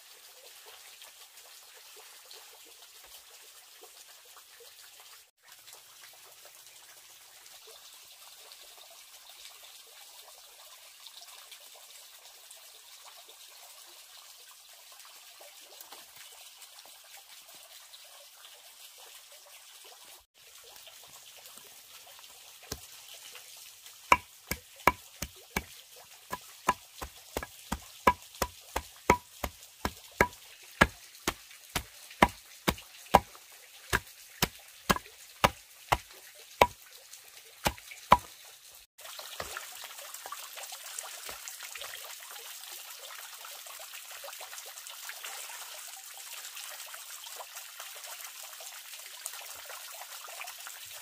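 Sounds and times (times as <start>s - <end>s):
fountain water trickling: 0.0s - 51.0s
knife chopping on wooden block: 24.1s - 25.0s, 26.7s - 31.0s, 31.8s - 33.3s, 34.9s - 36.0s, 37.7s - 38.3s.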